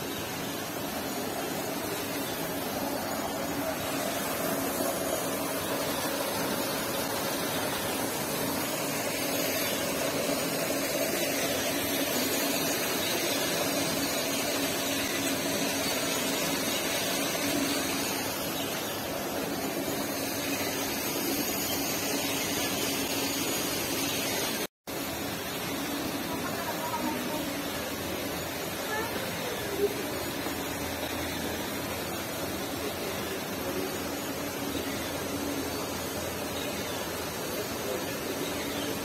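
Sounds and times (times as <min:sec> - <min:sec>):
mechanical hum and hiss: 0:00.0 - 0:39.0.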